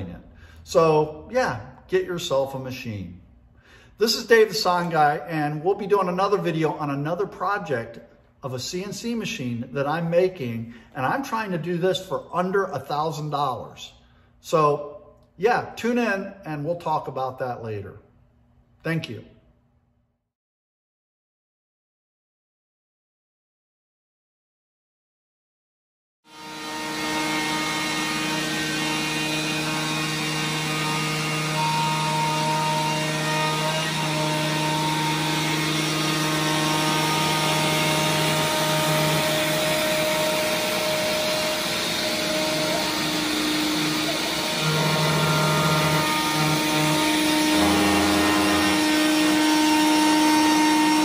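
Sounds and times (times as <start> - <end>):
machine tones shifting pitch: 26.3 - 51.0
router spindle cutting wood: 26.3 - 51.0.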